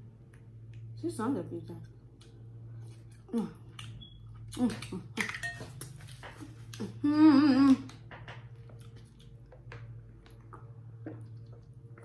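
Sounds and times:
low steady hum: 0.0s - 12.0s
woman humming a tune: 7.0s - 7.9s.

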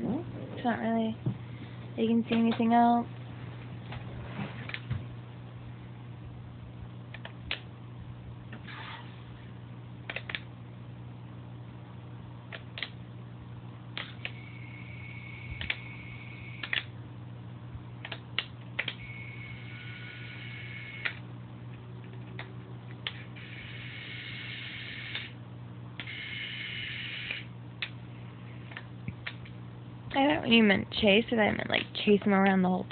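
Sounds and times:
steady low hum: 0.0s - 32.9s
sharp clicks: 10.1s - 10.5s, 18.0s - 19.0s.

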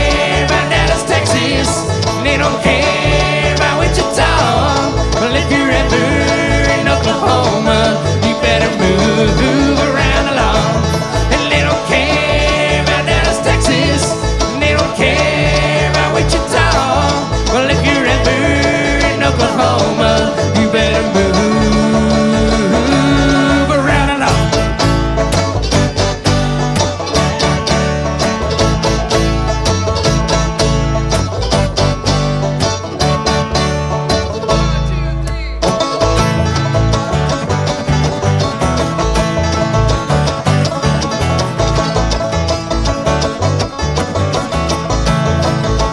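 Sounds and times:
bluegrass band playing: 0.0s - 45.9s.

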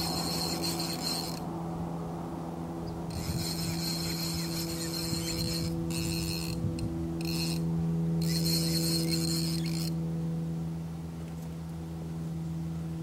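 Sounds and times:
fishing reel rattling: 0.0s - 1.4s, 3.1s - 6.6s, 7.2s - 10.0s
steady low hum: 0.0s - 13.0s.

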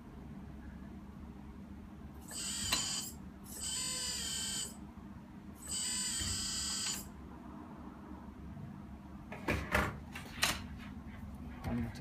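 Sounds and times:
small electric motor whining: 2.2s - 4.8s, 5.6s - 7.1s.

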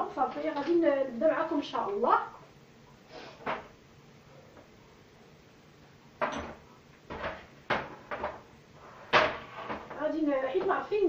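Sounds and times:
kitchenware knocking and clattering: 6.2s - 8.5s.

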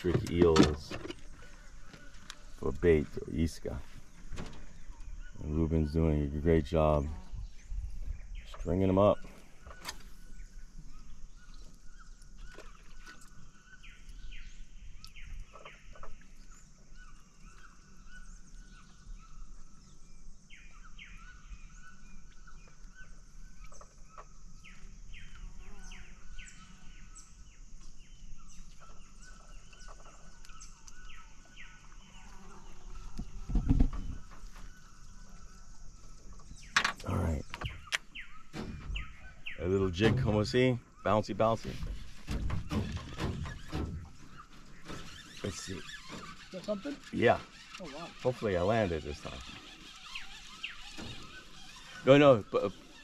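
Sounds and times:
birds chirping: 0.0s - 53.0s
dull thump: 33.1s - 34.7s, 38.5s - 39.3s, 41.7s - 45.2s.

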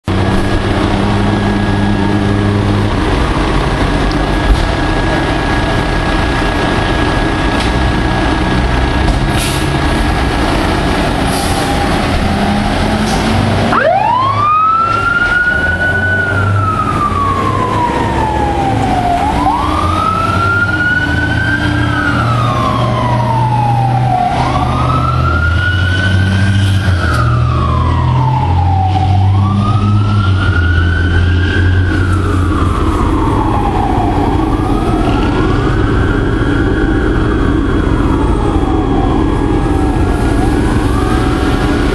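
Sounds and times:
fire truck engines rumbling: 0.0s - 41.9s
fire truck siren wailing: 0.0s - 41.9s.

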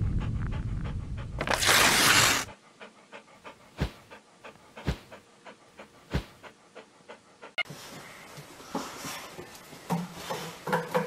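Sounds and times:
low rumble: 0.0s - 1.4s
dog panting: 0.0s - 1.5s, 2.2s - 9.4s.

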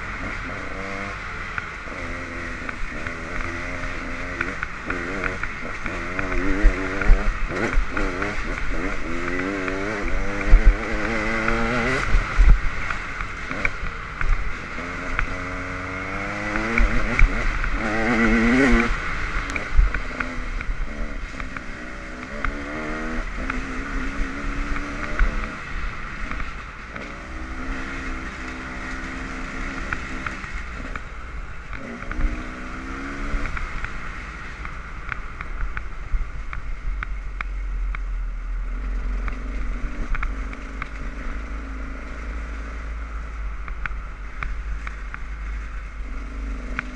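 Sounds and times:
dirt bike engine revving: 0.0s - 31.1s, 31.7s - 34.5s.

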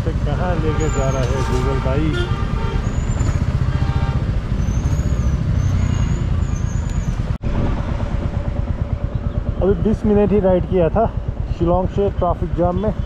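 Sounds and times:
motorcycle engine running: 0.0s - 13.0s
road noise: 0.0s - 13.0s
wind noise: 2.1s - 10.3s.

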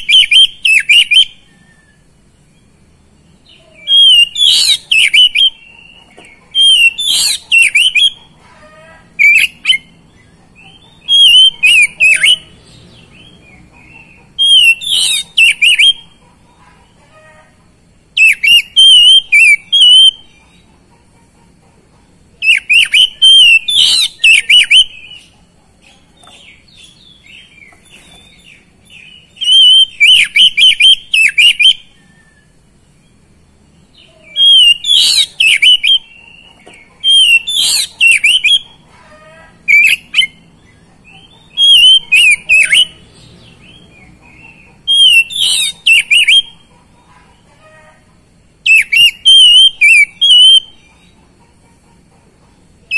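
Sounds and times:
bird singing whistles and warbles: 0.0s - 2.7s, 3.3s - 8.2s, 9.2s - 16.2s, 18.2s - 20.4s, 22.4s - 25.3s, 26.2s - 32.7s, 34.2s - 38.8s, 39.6s - 46.7s, 48.6s - 50.9s.

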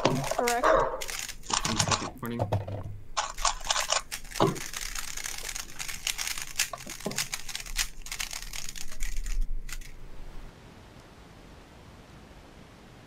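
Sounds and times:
puzzle cube clicking: 3.2s - 10.0s.

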